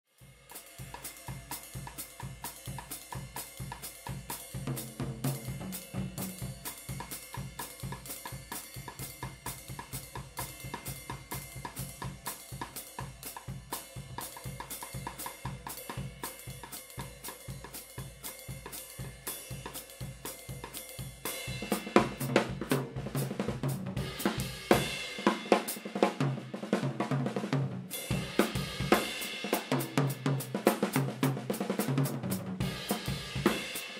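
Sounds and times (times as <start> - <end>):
cymbal strokes: 0.2 - 22.2
snare drum: 0.5 - 17.9, 18.6 - 33.9.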